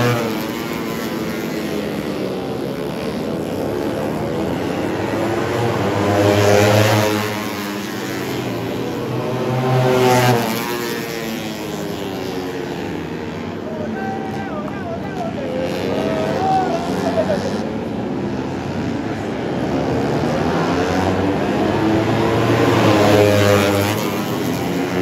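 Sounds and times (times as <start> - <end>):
race motorcycles passing at speed: 0.0 - 25.0.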